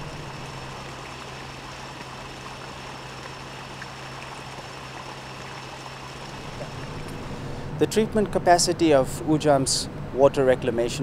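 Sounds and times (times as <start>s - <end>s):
churning water: 0.0s - 7.4s
low machine hum: 0.0s - 11.0s.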